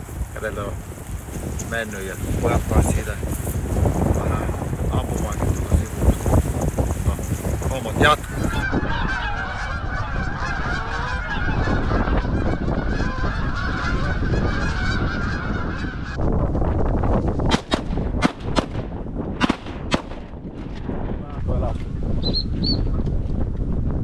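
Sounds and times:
wind rumble on microphone: 0.0s - 24.0s
geese honking: 4.4s - 16.2s
sharp cracks: 17.5s - 20.9s.

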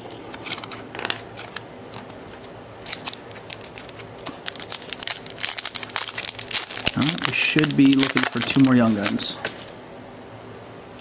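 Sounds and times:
foil wrapper crinkling: 2.8s - 9.8s.

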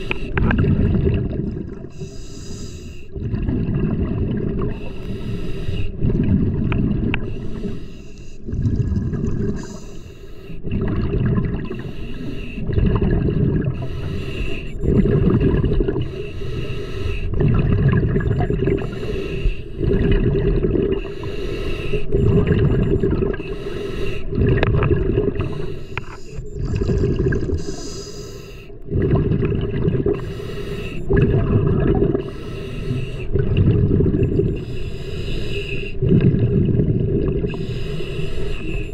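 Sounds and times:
bubbling exhales: 0.0s - 7.8s, 8.4s - 38.9s
hissing regulator inhales: 1.9s - 3.1s, 4.8s - 6.0s, 7.4s - 8.4s, 9.6s - 10.6s, 11.7s - 12.6s, 13.8s - 14.9s, 16.1s - 17.3s, 18.8s - 19.8s, 21.0s - 22.2s, 23.4s - 24.3s, 27.6s - 28.8s, 30.2s - 31.1s, 32.2s - 33.3s, 34.5s - 36.0s, 37.5s - 38.9s.

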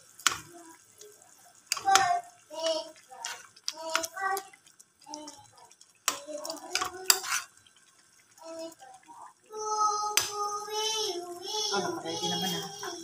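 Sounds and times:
metal spoon scraping a pot: 6.7s - 7.6s
person speaking in background: 11.4s - 13.0s.

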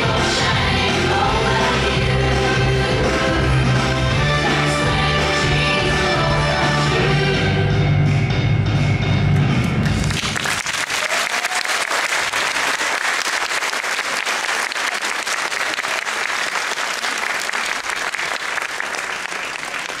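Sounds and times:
dance music: 0.0s - 8.1s
audience applause: 9.8s - 20.0s.

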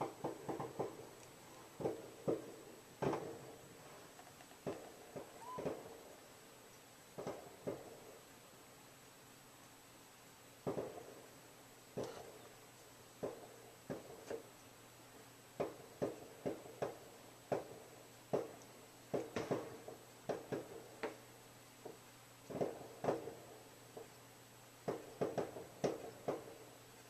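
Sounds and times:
firecrackers popping: 0.0s - 3.6s.

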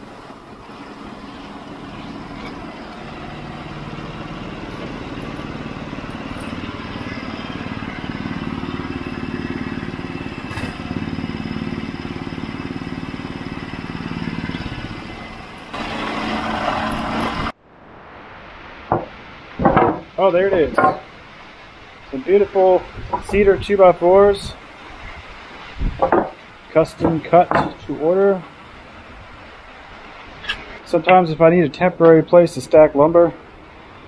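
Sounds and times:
small gasoline engine running: 0.4s - 17.5s
loud rushing noise: 13.8s - 26.4s.

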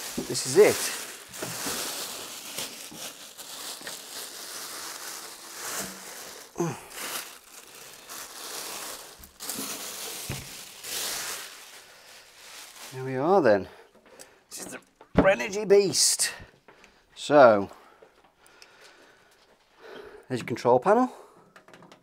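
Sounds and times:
plastic bag rustling and crinkling: 0.0s - 13.7s.

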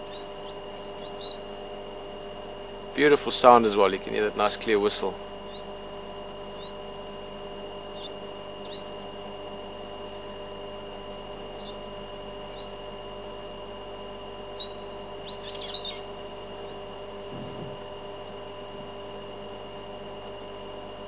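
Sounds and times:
shrill parrot calls: 0.0s - 1.5s, 8.0s - 9.0s, 14.5s - 16.2s
faint steady hum: 0.0s - 21.0s
parrot whistling: 14.5s - 16.2s.

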